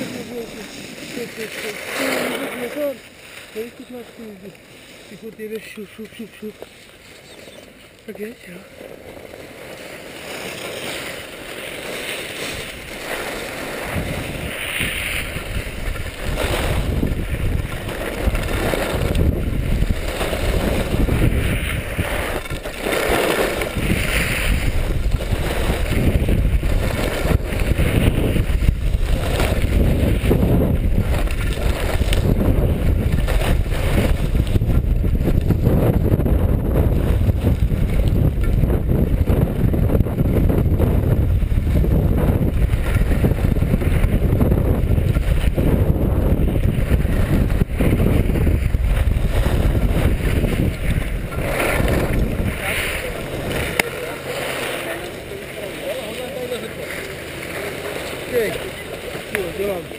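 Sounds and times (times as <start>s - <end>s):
skis scraping on snow: 0.0s - 59.9s
wind buffeting microphone: 12.4s - 59.9s.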